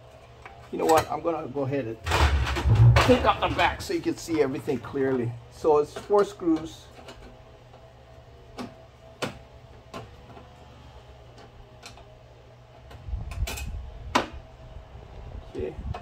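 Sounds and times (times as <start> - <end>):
low rumble: 2.0 - 4.2.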